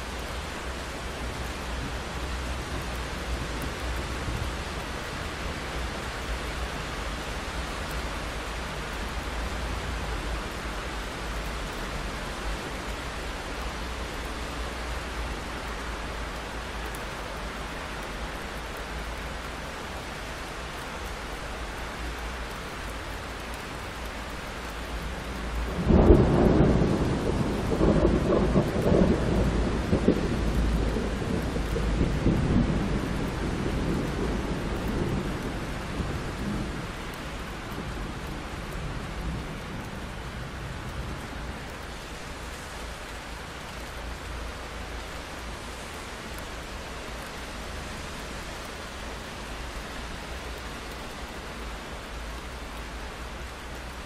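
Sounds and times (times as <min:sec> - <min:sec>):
rain on a window: 0:00.0 - 0:54.0
thunderclap and rumbling thunder: 0:25.6 - 0:41.3.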